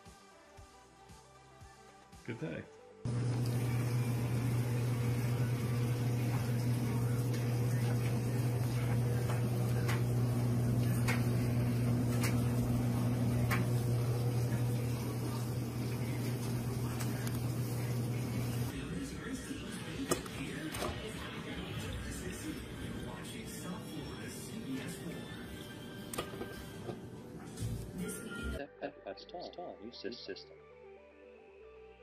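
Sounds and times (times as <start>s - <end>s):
water filter humming: 3.1s - 18.7s
water hissing: 3.1s - 18.7s.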